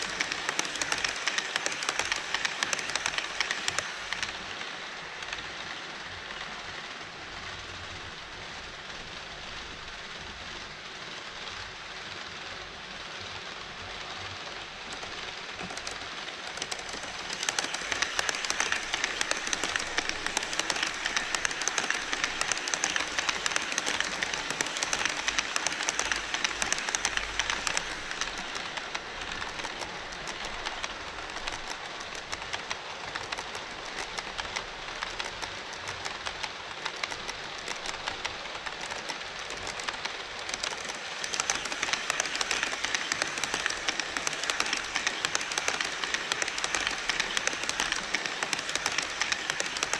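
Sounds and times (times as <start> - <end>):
wheel clicks over rail joints: 0.0 - 4.4, 14.9 - 49.9
model trains rolling: 0.0 - 49.9.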